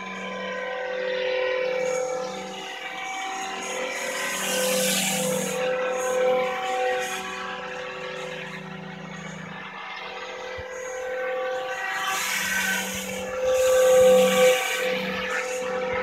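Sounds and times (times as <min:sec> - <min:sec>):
model helicopter whine: 0:00.0 - 0:16.0.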